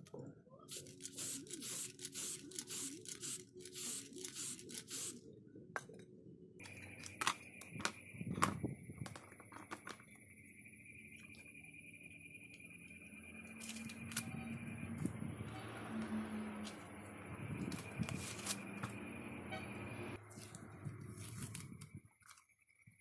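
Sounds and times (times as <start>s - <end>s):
spray can hissing: 0.7s - 5.2s
high-pitched whine: 0.7s - 5.5s, 6.6s - 23.0s
plastic parts clicking and knocking: 6.6s - 10.1s.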